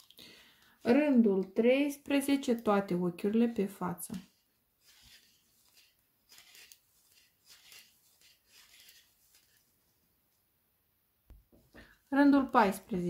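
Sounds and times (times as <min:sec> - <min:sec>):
knitting needles scraping and clicking: 0:01.4 - 0:09.8.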